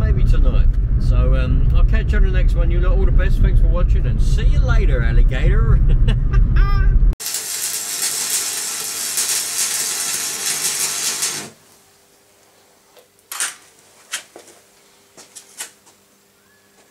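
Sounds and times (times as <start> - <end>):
welding arc crackling and hissing: 7.2 - 12.5.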